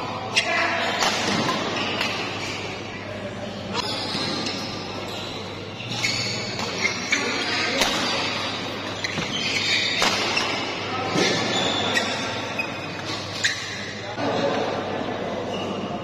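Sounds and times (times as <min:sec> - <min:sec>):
spectators chattering and calling: 0:00.0 - 0:16.0
rackets hitting shuttlecock: 0:00.9 - 0:02.4, 0:07.6 - 0:08.4, 0:09.9 - 0:11.5.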